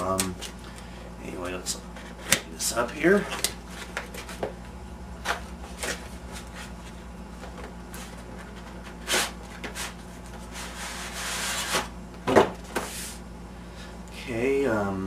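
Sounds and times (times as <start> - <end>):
cardboard scraping rub: 7.9 - 11.9.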